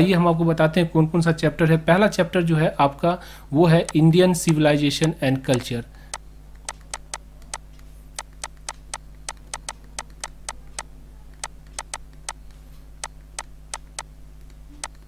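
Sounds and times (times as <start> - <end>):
low electrical hum: 0.0 - 15.0
input device clicks: 3.8 - 15.0.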